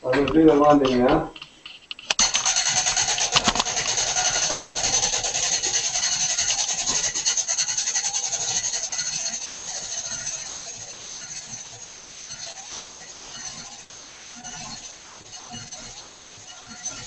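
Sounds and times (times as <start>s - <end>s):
winding gear clattering clicks: 1.4s - 4.0s.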